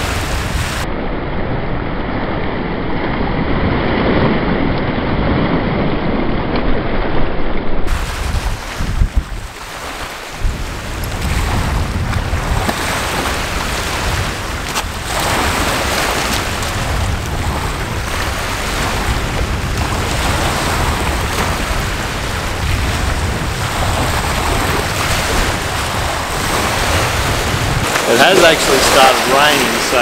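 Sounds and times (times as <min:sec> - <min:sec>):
waves washing onto pebbles: 0:00.0 - 0:00.9, 0:07.9 - 0:30.0
wind buffeting microphone: 0:00.0 - 0:30.0.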